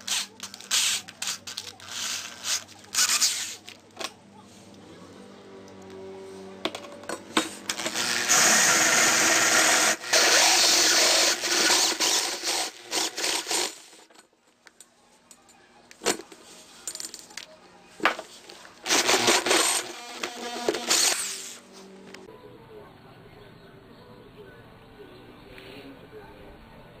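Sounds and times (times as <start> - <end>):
power drill grinding through metal: 7.7 - 14.0, 18.8 - 21.6.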